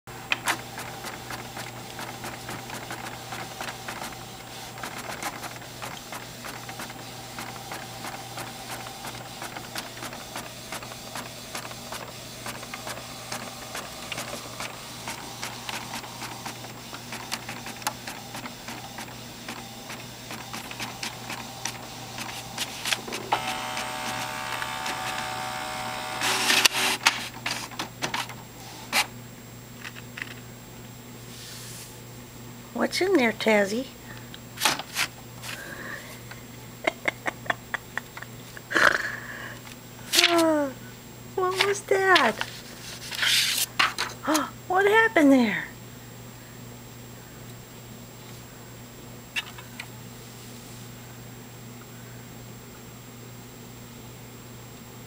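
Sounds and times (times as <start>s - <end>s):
printer motor whine: 0.2s - 29.0s
printer clicking and whirring: 0.2s - 29.1s
paper feeding clatter: 0.3s - 29.1s.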